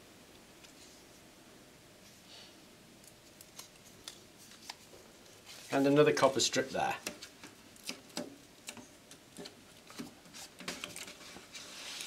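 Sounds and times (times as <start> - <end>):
adhesive tape clicks and crinkles: 3.0 - 4.9, 6.9 - 12.0.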